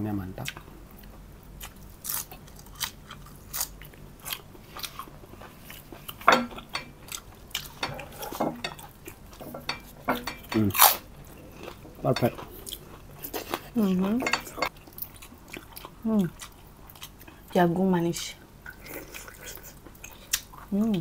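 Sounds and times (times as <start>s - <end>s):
chewing crunchy food: 0.4s - 9.4s, 10.1s - 17.5s.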